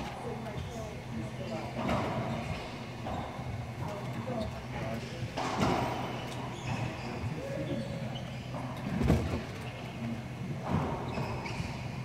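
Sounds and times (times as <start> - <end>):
sneakers squeaking on hardwood: 1.4 - 4.8, 5.4 - 12.0
racquetball smacking racquets and walls: 5.3 - 6.9.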